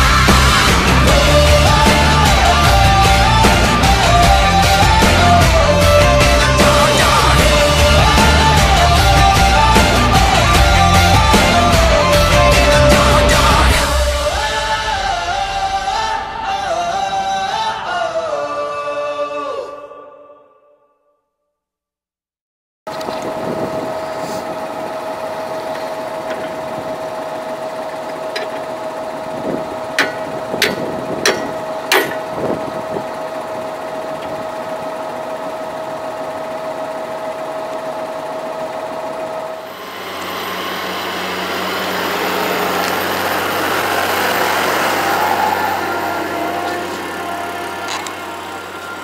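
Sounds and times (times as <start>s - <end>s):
tractor engine whining: 0.0s - 19.6s, 22.9s - 49.0s
plough turning soil: 22.9s - 39.4s, 40.1s - 49.0s
tools striking metal: 28.3s - 28.6s, 30.0s - 32.3s.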